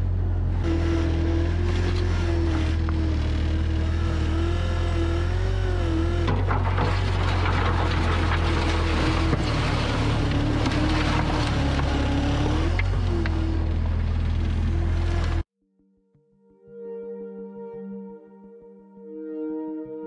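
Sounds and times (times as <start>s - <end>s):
excavator engine with hydraulic whine: 0.0s - 15.4s
rough scraping noise: 6.3s - 13.2s.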